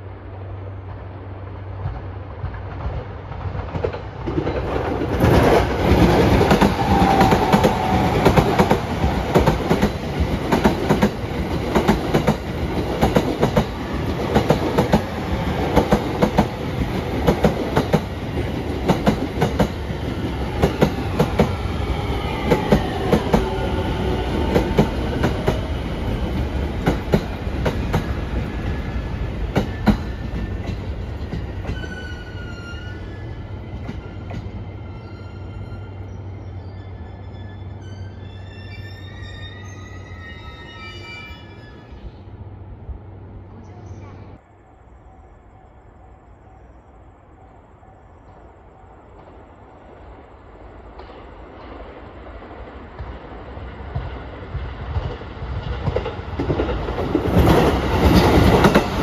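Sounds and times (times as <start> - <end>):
train whine falling in pitch: 6.3 - 9.8.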